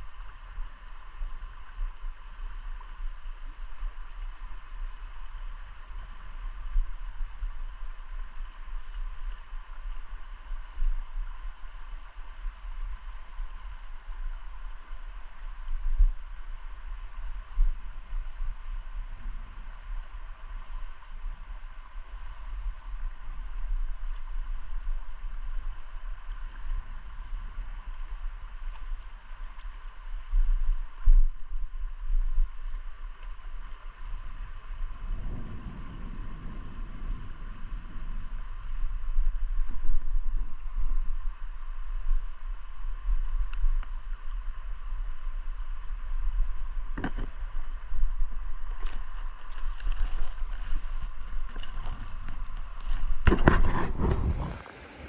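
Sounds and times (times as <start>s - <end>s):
river flowing over riffles: 0.0s - 55.0s
low rumble: 34.2s - 43.8s.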